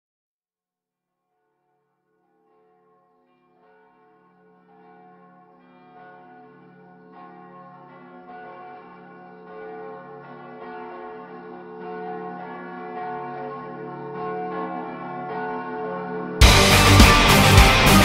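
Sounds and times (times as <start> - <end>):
church bells ringing: 3.6 - 18.0.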